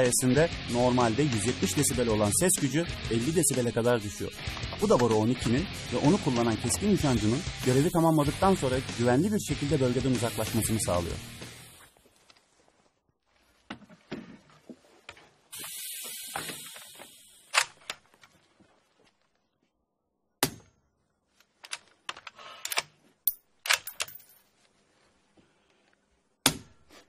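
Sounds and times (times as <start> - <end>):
hiss: 10.2 - 11.9, 15.5 - 17.5
rifle bolt clacking: 21.6 - 24.2.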